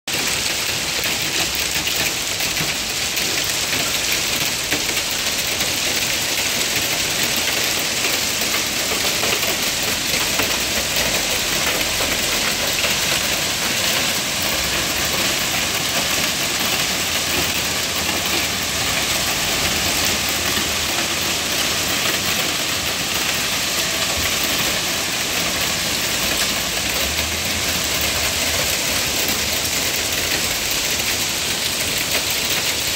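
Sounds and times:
hail and rain on pavement and cars: 0.1 - 32.9.

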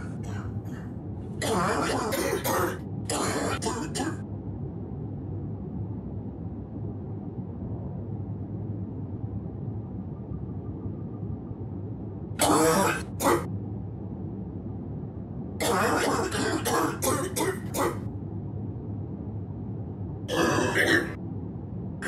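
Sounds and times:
person coughing: 12.4 - 13.5, 15.6 - 18.0, 20.3 - 21.2.

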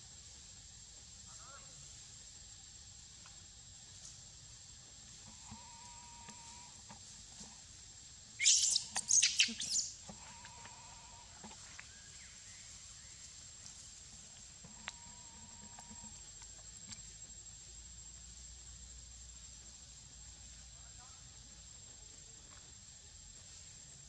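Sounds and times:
baby monkey screaming: 8.4 - 10.0
faint wavering monkey calls: 8.4 - 12.2.

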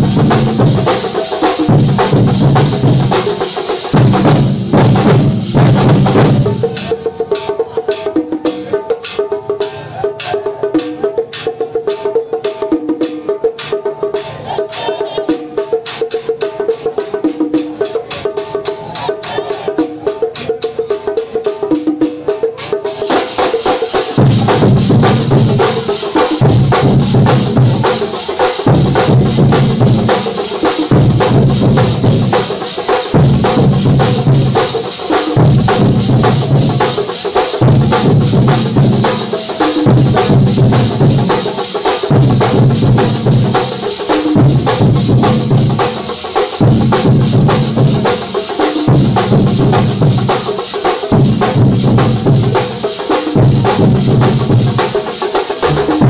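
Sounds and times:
deep drum beat: 0.0 - 7.4, 23.1 - 56.0
chenda drums playing fast rhythm: 0.0 - 56.0.

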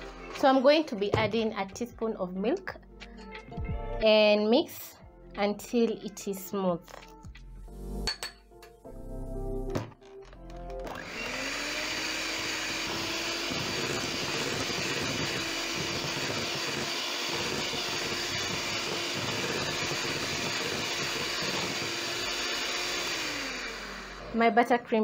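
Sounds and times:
electric hand mixer running: 10.6 - 25.0.

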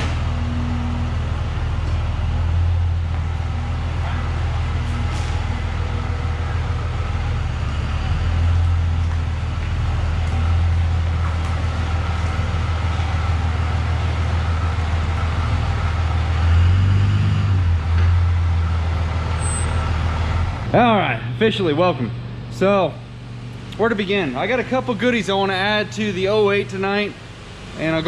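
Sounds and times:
diesel truck engine rumble: 0.0 - 28.0.

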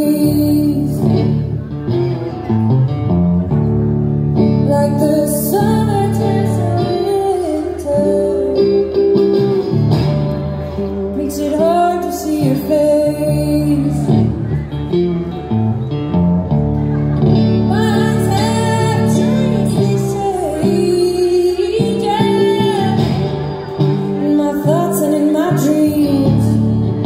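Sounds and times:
woman singing: 0.0 - 1.5, 4.5 - 9.8, 11.1 - 14.3, 17.7 - 23.4, 24.0 - 27.0
guitar playing: 0.0 - 27.0.

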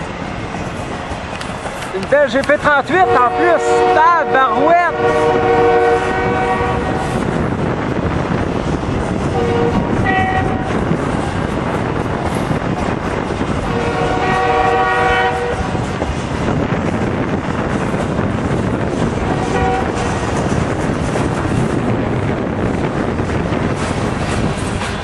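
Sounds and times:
locomotive horn blasts: 2.9 - 7.1, 9.3 - 10.7, 13.7 - 15.7, 19.4 - 20.0.

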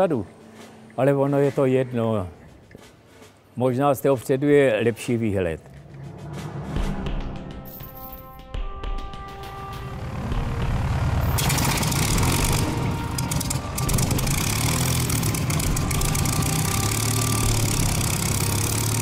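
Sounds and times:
aircraft engine starting and running: 5.6 - 7.7, 8.6 - 19.0.

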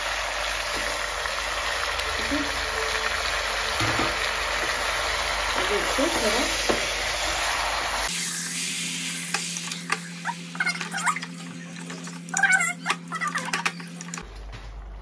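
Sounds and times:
meat sizzling in hot oil: 0.0 - 14.2.

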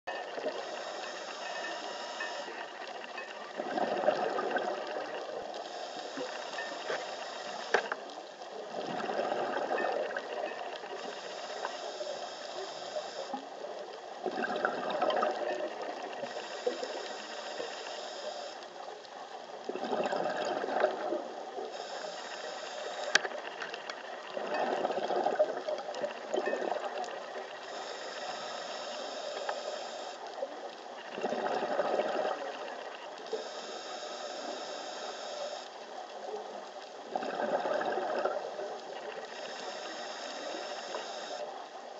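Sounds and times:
regulator hiss on inhale: 0.2 - 3.6, 4.4 - 8.2, 9.9 - 13.8, 15.4 - 19.0, 21.6 - 23.8, 25.4 - 30.8, 32.3 - 35.8, 38.9 - 41.5
bubbles from exhaling underwater: 8.8 - 10.3, 14.3 - 15.5, 19.7 - 21.1, 37.1 - 38.4.

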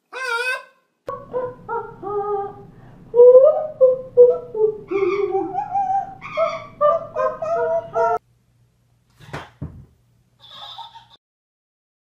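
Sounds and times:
woman singing: 1.1 - 8.2
parrot singing: 3.2 - 8.2.

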